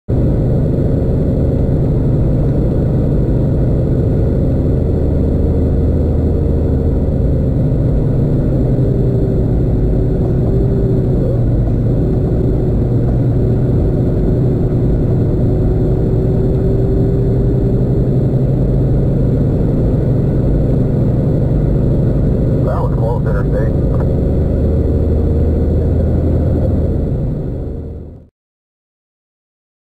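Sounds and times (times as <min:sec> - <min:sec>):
road noise: 0:00.1 - 0:28.2
truck diesel engine drone: 0:00.1 - 0:28.3.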